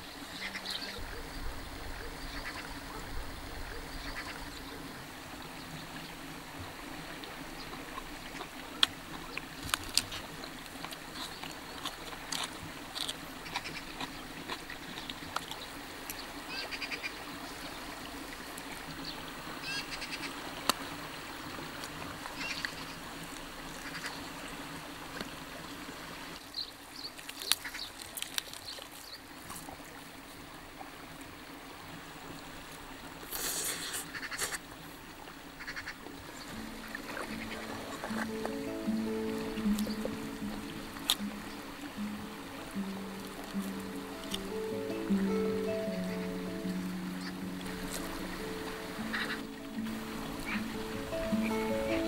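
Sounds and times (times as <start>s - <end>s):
riverside background: 35.6s - 52.0s.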